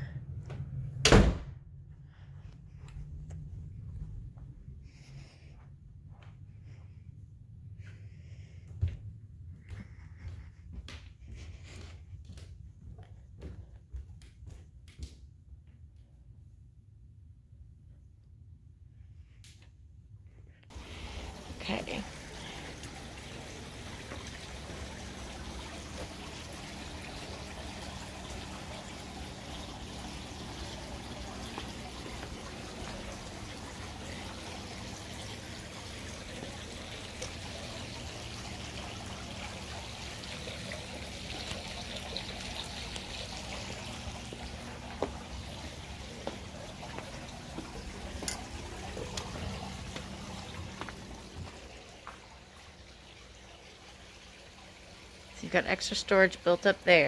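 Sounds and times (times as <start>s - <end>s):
water trickling and pouring: 20.7s - 57.0s.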